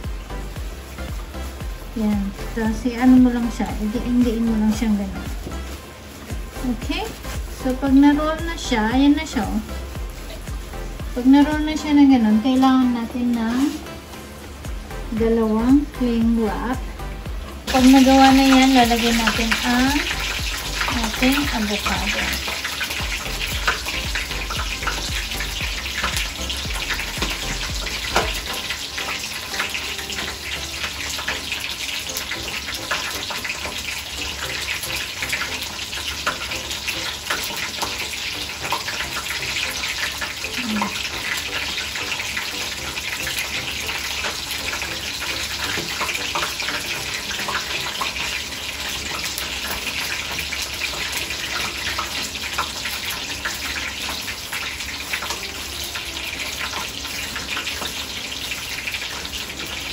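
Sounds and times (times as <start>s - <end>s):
steady rushing hiss: 0.0s - 15.9s.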